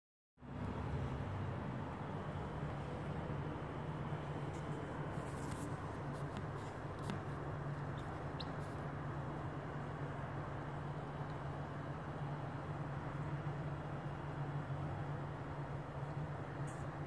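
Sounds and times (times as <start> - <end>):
incubator humming: 0.4 - 17.0
chick peeping: 7.8 - 8.8.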